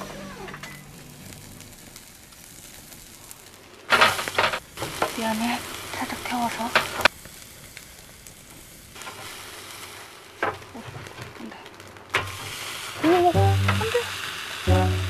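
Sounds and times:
chicken sizzling on grill: 0.0 - 15.0
fat hissing and crackling in flames: 0.0 - 15.0.

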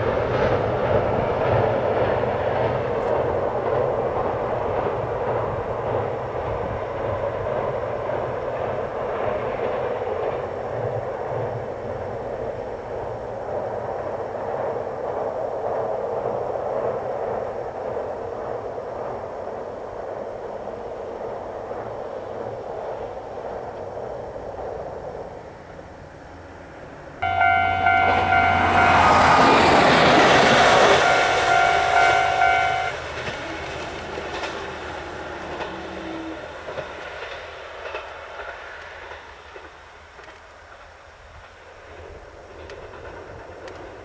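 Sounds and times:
train engine and wheel noise: 0.0 - 44.0
train horn chord: 27.2 - 36.8.

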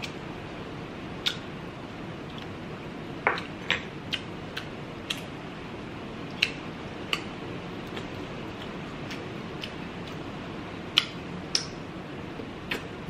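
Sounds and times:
steady background hiss: 0.0 - 13.0
person chewing with wet mouth clicks: 1.2 - 1.5, 6.3 - 10.2.

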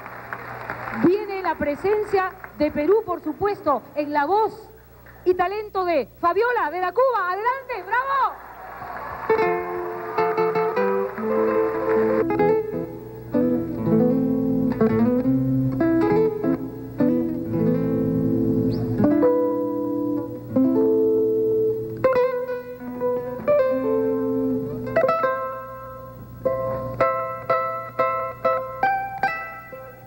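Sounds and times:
live band music: 9.1 - 30.0
held lower notes: 9.3 - 30.0
plucked strings melody: 9.4 - 30.0.

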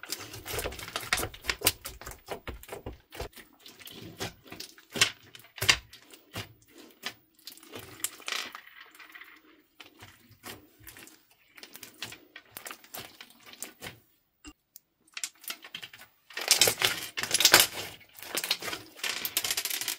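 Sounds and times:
slime popping and crackling: 15.2 - 19.9.

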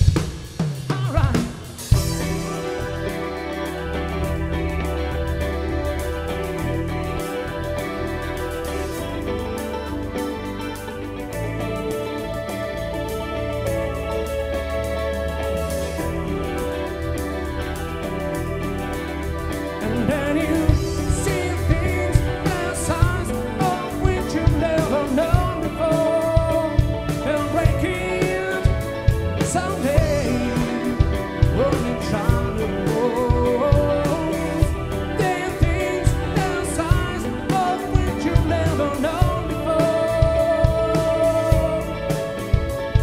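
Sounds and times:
live rock band playing: 0.0 - 43.0
steady drum beat: 0.0 - 43.0
man singing: 0.9 - 4.2, 19.8 - 43.0.

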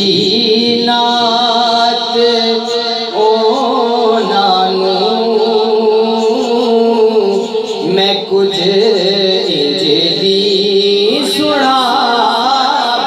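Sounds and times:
man singing devotional song: 0.0 - 13.0.

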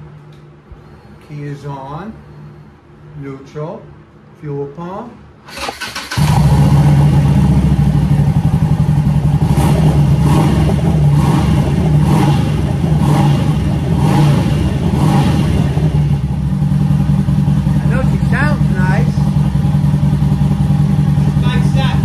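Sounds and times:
motorcycle engine running: 5.6 - 22.0.

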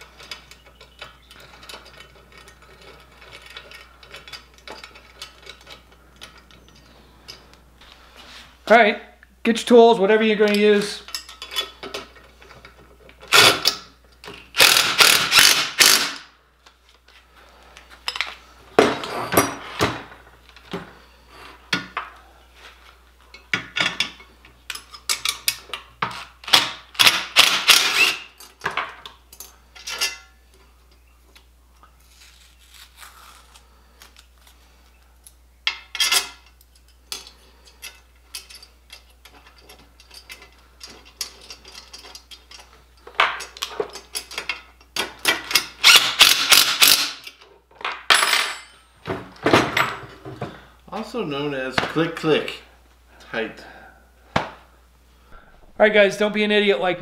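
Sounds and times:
tools and hardware clinking: 0.0 - 7.5, 10.4 - 16.0, 18.0 - 19.8, 23.3 - 31.0, 35.2 - 48.9.

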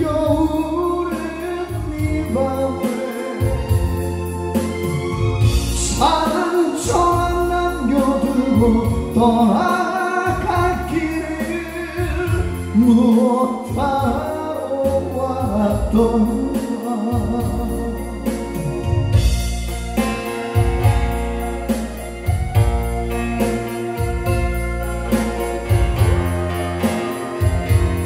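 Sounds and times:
man singing into a microphone: 0.0 - 3.8, 4.6 - 19.2
acoustic guitar: 0.0 - 28.0
upright bass: 0.0 - 28.0.

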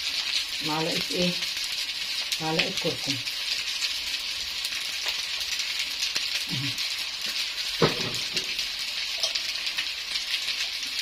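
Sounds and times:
rice sizzling in a pot: 0.0 - 11.0
low voice murmur: 6.5 - 6.8.

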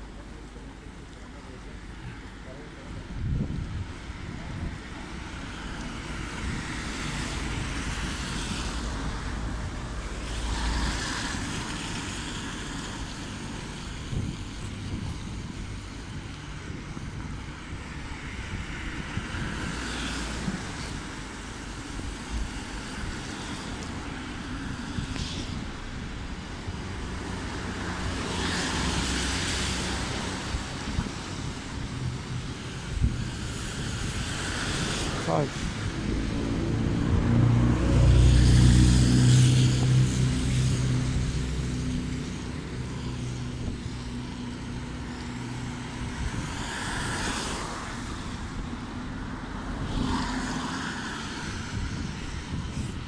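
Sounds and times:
tyres hissing on wet road: 0.0 - 53.0
wind rumble on microphone: 2.8 - 53.0.

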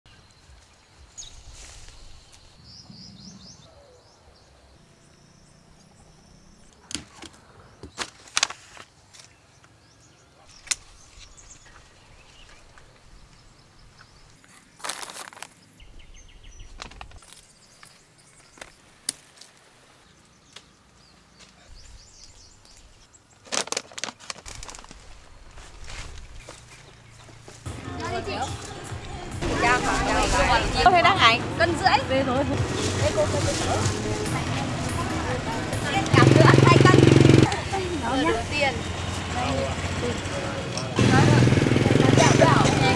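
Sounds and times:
faint bird chirps: 0.1 - 6.9.

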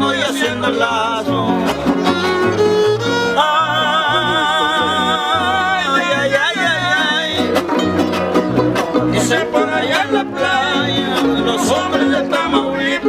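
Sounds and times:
string trio strumming folk music: 0.0 - 13.0
voice holding long vibrato note: 3.3 - 5.7.

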